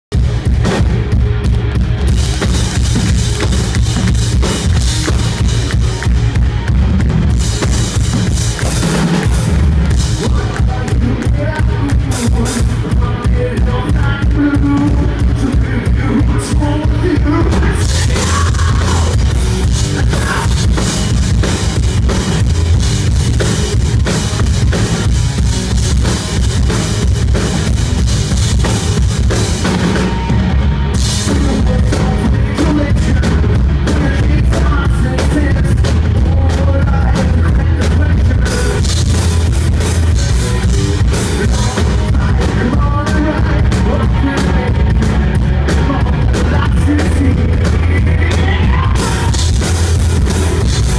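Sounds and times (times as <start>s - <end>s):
rock band playing live: 0.1s - 50.9s.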